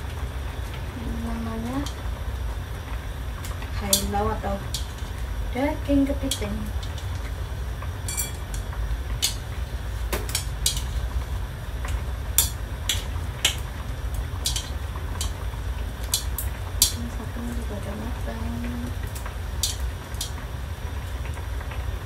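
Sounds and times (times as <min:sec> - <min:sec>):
low rumble: 0:00.0 - 0:22.0
chopsticks clinking on metal wok: 0:03.8 - 0:05.2, 0:06.0 - 0:07.3, 0:08.1 - 0:09.5, 0:10.1 - 0:11.2, 0:12.4 - 0:13.6, 0:14.4 - 0:15.4, 0:16.0 - 0:17.6, 0:19.6 - 0:20.4.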